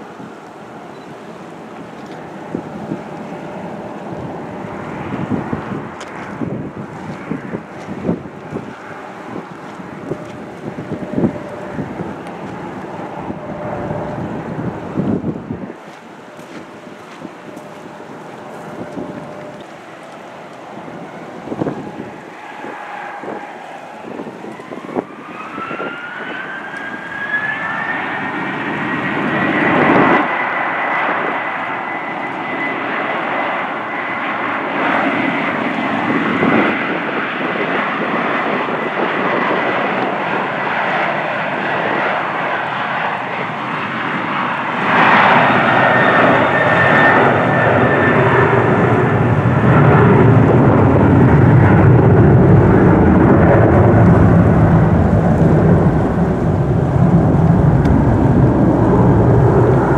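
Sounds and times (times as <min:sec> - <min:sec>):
jet engine whine: 0:00.0 - 0:59.9
deep low jet rumble: 0:00.1 - 0:59.9
rushing noise: 0:02.5 - 0:34.6, 0:44.1 - 0:59.9.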